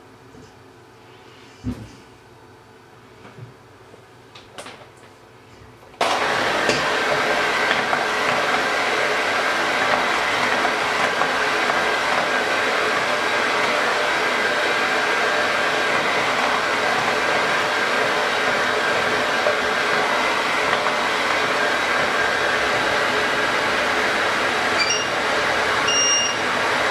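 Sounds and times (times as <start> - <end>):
electric hand mixer running: 6.0 - 26.9
motor high whine: 16.2 - 26.9.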